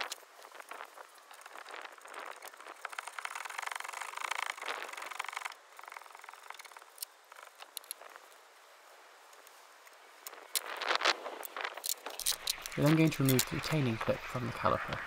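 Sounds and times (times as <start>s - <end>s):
metallic clicks: 11.4s - 13.8s.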